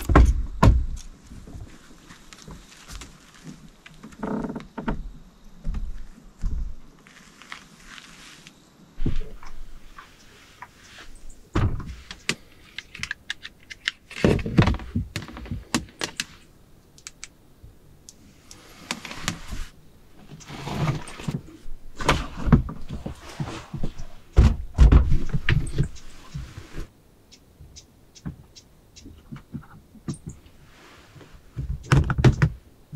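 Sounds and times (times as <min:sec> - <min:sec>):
rustling: 0:01.0 - 0:04.6, 0:05.9 - 0:16.5
clicks and knocks of gear: 0:12.1 - 0:16.4.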